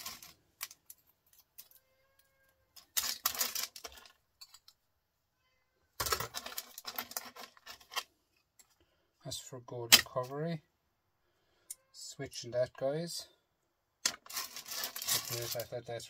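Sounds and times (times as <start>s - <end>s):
metal and plastic scraps rattling: 0.0s - 1.9s, 2.7s - 4.8s, 6.0s - 8.7s, 14.0s - 15.8s.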